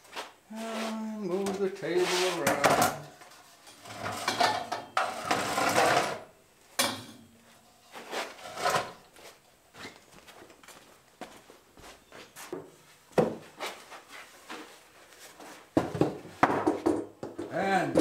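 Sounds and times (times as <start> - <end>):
table top scraping: 3.7 - 6.3, 7.9 - 9.0.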